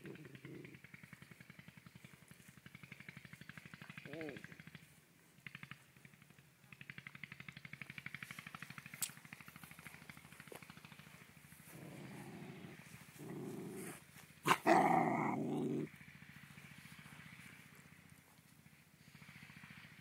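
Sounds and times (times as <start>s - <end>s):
puppies growling: 0.0s - 0.8s, 11.6s - 15.9s.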